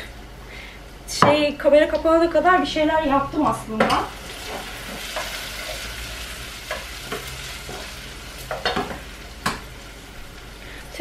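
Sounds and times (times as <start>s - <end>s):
peppers sizzling in a pan: 3.9s - 11.0s.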